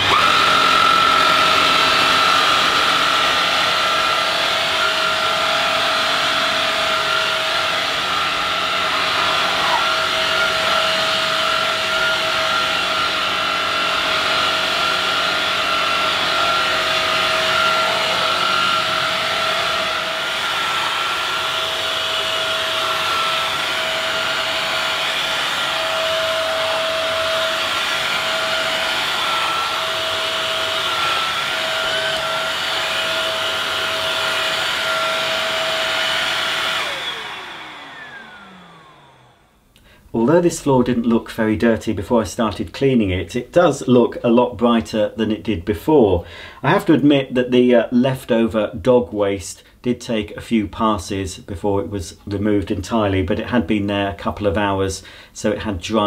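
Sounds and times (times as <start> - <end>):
motor spinning down: 0.0 - 39.6
floor washer motor whine: 0.0 - 39.7.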